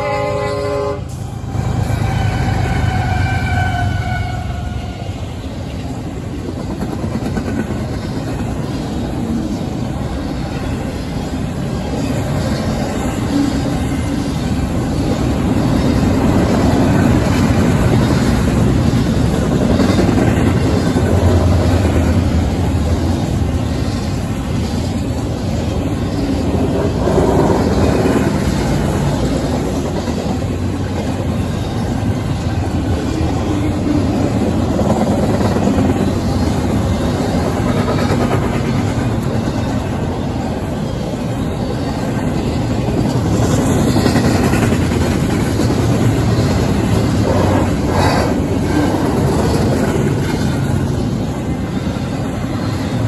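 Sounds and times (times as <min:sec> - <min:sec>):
freight train wheels rolling on rails: 0:00.0 - 0:53.0.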